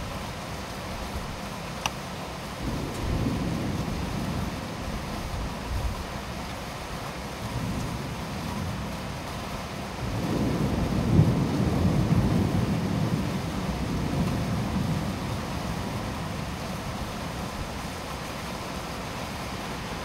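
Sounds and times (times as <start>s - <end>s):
heavy rain hissing: 0.0s - 20.0s
low rumble of thunder: 2.6s - 6.1s, 10.0s - 17.7s.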